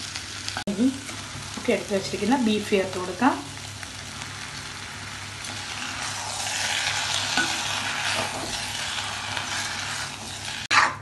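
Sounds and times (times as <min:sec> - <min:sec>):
food sizzling in a pan: 0:00.0 - 0:11.0
spoon stirring in a pan: 0:05.4 - 0:11.0.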